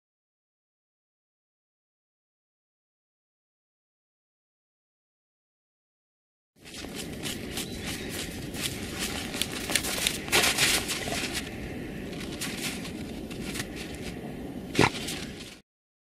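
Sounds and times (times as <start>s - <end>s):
dogs digging in crusted snow: 6.6s - 15.6s.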